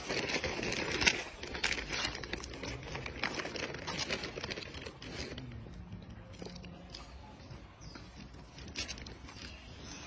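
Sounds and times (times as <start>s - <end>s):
plastic wrapper crinkling: 0.0s - 5.5s.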